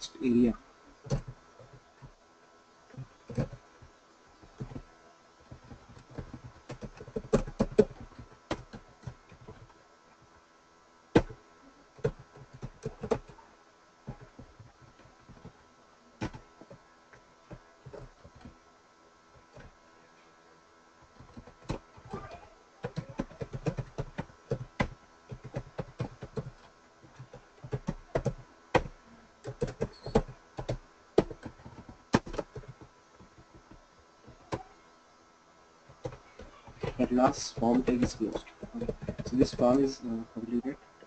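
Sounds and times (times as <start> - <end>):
faint electrical hum: 0.0 - 41.0
keyboard keys clicking: 12.0 - 13.4, 22.8 - 34.7, 35.9 - 40.0.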